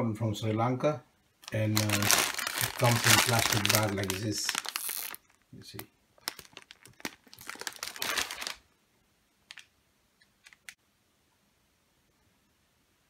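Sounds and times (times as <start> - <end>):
plastic bag crinkling: 1.4 - 8.6.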